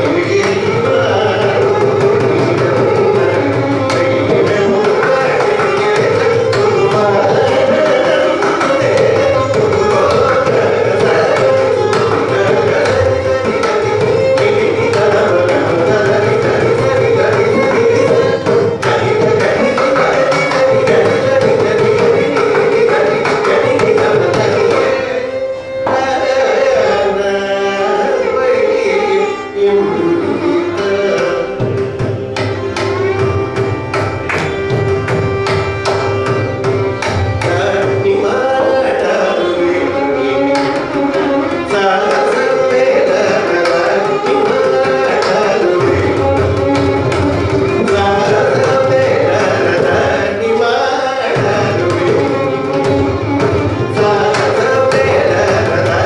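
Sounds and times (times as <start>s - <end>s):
hand drums: 0.0s - 25.0s, 30.7s - 39.1s, 40.4s - 50.4s, 51.3s - 56.0s
man singing: 0.0s - 33.6s, 34.5s - 56.0s
violin: 0.0s - 56.0s.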